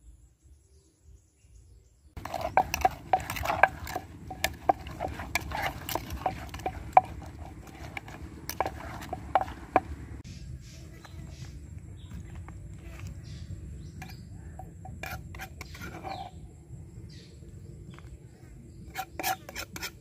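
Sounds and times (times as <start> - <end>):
pestle pounding in wooden mortar: 2.2 - 10.2.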